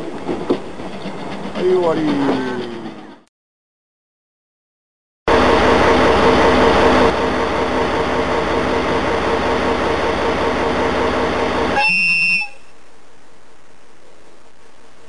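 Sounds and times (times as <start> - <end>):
short horn toot: 11.7 - 12.7.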